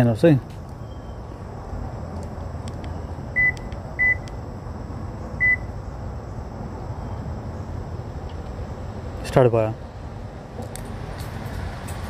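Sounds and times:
short high-pitched car beeps: 0:03.4 - 0:04.3, 0:05.4 - 0:05.7.

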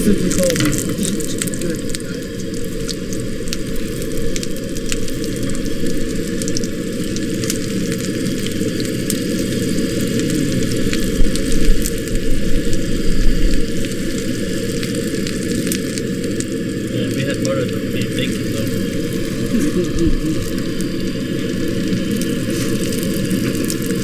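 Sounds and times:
camp stove roar: 0:00.0 - 0:24.0
meat sizzling in hot oil: 0:00.0 - 0:24.0.

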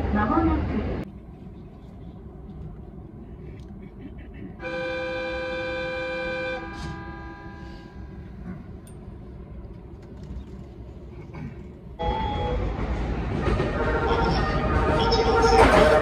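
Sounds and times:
train horn chord: 0:04.6 - 0:08.1
train running rushing noise: 0:10.6 - 0:16.0.

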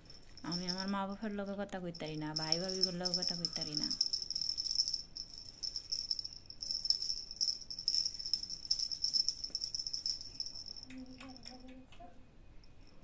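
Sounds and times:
high-pitched insect trill: 0:02.4 - 0:10.9.

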